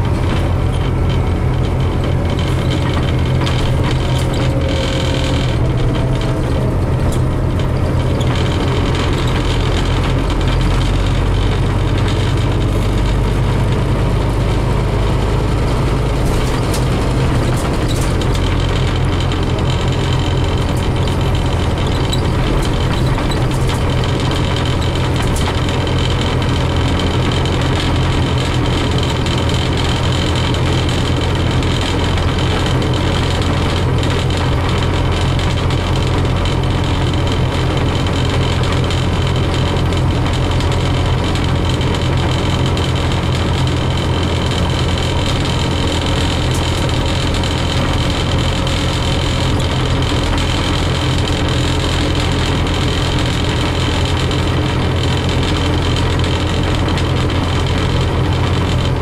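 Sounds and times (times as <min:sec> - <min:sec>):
bus engine and road noise: 0:00.0 - 0:59.0.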